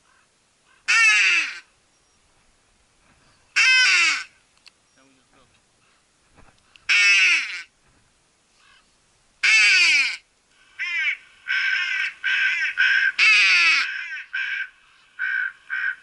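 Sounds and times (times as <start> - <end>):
crows cawing: 0.0 - 1.7, 3.5 - 4.4, 6.9 - 7.7, 8.6 - 16.0.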